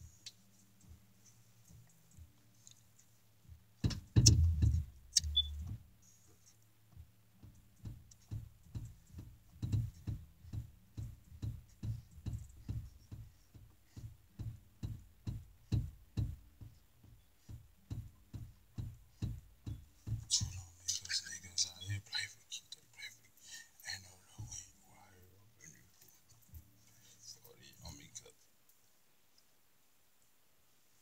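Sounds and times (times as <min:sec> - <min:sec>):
low kick drum thumps: 0:03.5 - 0:05.9, 0:07.0 - 0:20.8
deep bass hit: 0:04.1 - 0:05.8.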